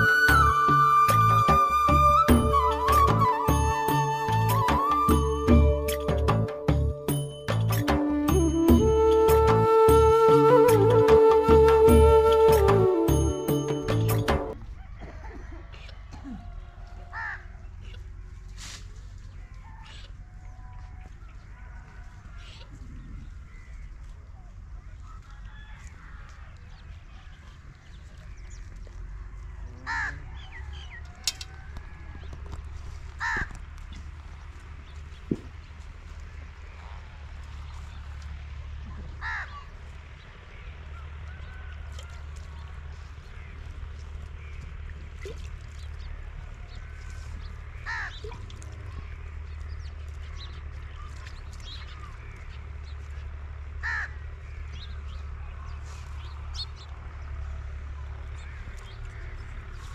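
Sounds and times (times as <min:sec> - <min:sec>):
crow cawing: 0:17.1 - 0:17.5, 0:29.9 - 0:30.4, 0:33.2 - 0:33.5, 0:39.2 - 0:39.6, 0:47.8 - 0:48.2, 0:53.8 - 0:54.3
small birds chirping: 0:42.5 - 0:59.9.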